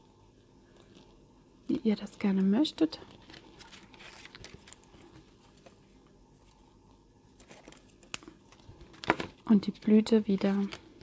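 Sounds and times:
paper rustling: 2.9 - 6.7, 7.3 - 10.9.

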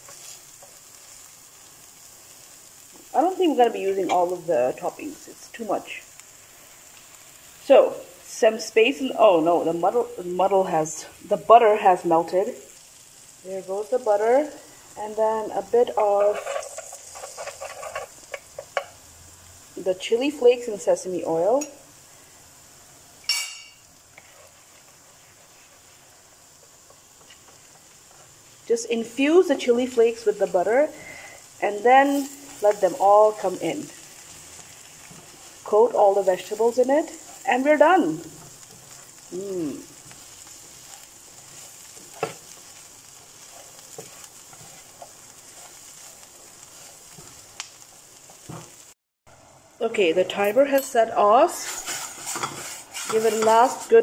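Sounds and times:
spatula scraping a pan: 0.0 - 1.4, 16.0 - 18.9, 23.3 - 26.0, 32.0 - 47.5, 51.4 - 54.0
vegetables sizzling in a pan: 0.0 - 54.0.

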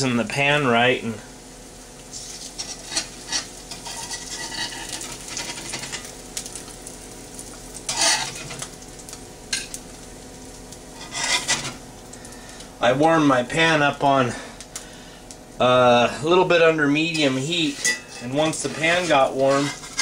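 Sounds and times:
eggs sizzling in butter: 0.2 - 20.0
metal spatula scraping pan: 2.1 - 6.0, 7.9 - 8.6, 11.0 - 11.8, 17.0 - 20.0.

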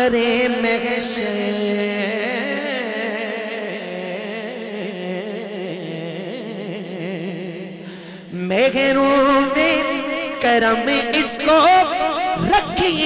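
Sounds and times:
man singing long wavering note: 8.4 - 13.0.

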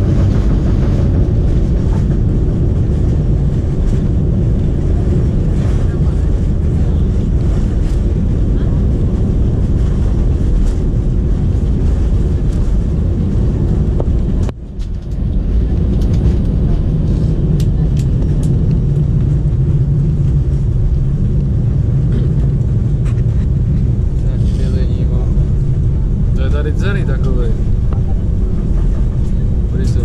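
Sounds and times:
low hum: 0.0 - 30.0
rumble of engines and wheels: 0.0 - 30.0.

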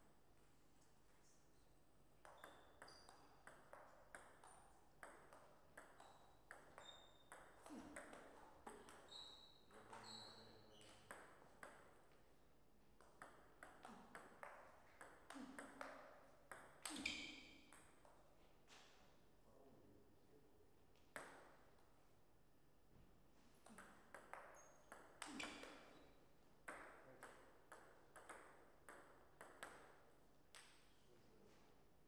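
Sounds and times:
table tennis ball hits: 2.2 - 9.1, 10.8 - 12.0, 13.0 - 18.2, 21.1 - 21.7, 23.6 - 26.0, 26.6 - 30.9.

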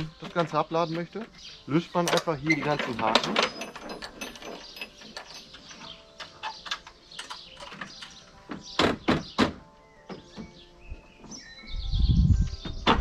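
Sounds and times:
hooks clunking on wooden bed: 0.0 - 10.6
metal hooks clicking and knocking: 2.0 - 8.3.

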